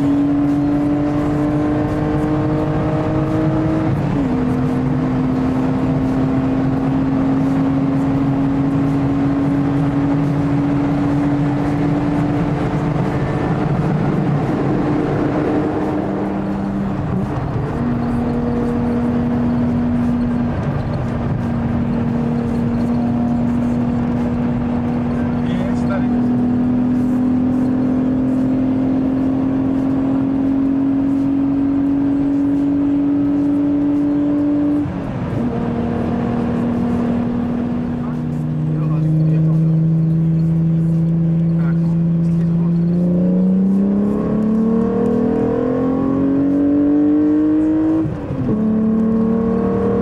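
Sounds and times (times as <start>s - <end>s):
car engine pulling hard: 0.0s - 50.0s
road and wind noise: 0.0s - 50.0s.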